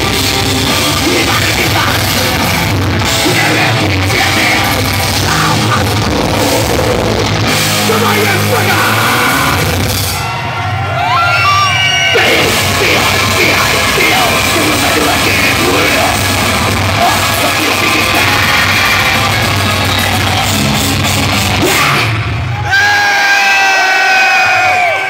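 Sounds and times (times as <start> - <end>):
metal band playing live: 0.0 - 23.9
shouted vocals: 7.8 - 20.6, 21.5 - 25.0
crowd yells and whoops: 8.1 - 14.5, 15.7 - 25.0.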